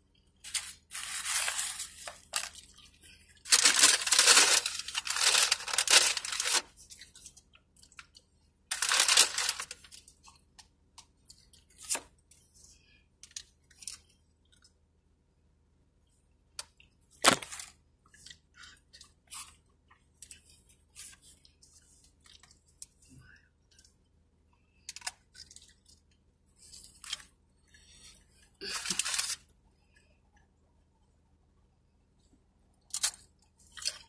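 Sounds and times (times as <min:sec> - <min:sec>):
person chewing chips: 0:00.5 - 0:08.1, 0:32.9 - 0:34.0.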